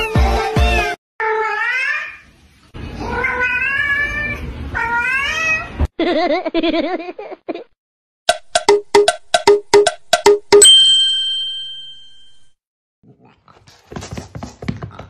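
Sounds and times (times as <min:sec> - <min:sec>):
cat meowing: 0:01.2 - 0:02.2, 0:03.0 - 0:05.8
cat wavering cry: 0:01.2 - 0:02.2, 0:03.0 - 0:05.8.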